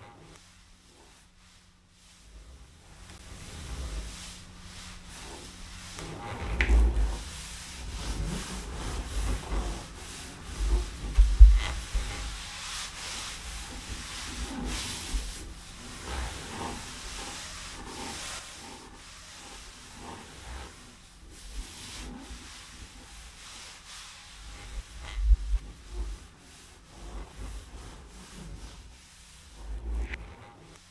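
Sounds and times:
charcoal scraping on paper: 0.0 - 30.9
low thumps: 10.5 - 12.6.

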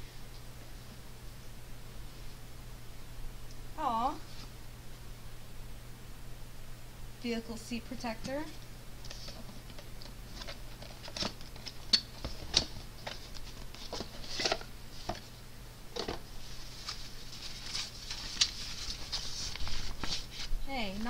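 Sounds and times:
fabric rustling: 16.3 - 21.0.

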